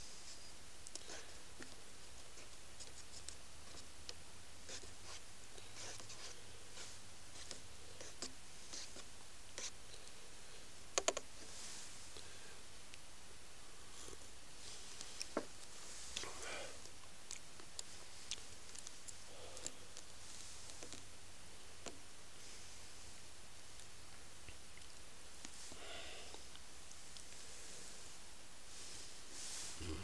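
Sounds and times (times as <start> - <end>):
faint steady hiss: 0.0 - 30.0
small clicks and scratching: 11.0 - 11.3.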